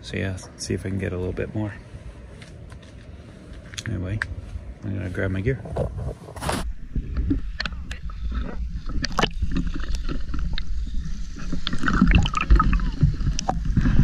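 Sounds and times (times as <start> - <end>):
sea water sloshing and splashing: 7.0 - 14.0.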